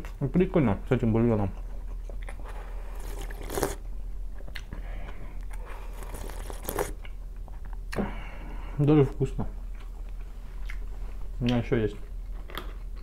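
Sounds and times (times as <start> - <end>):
swallowing and mouth noises: 2.1 - 3.8, 5.5 - 7.2
slurping from a mug: 2.8 - 3.8, 5.9 - 7.0.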